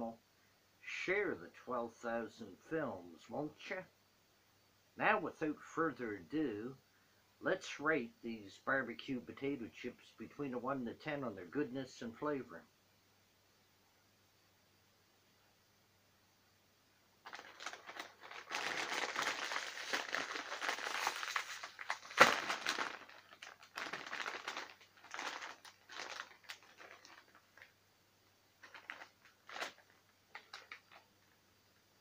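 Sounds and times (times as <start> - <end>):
chip bag crinkling: 17.2 - 27.8, 28.6 - 31.1
bag popping: 17.3 - 27.3.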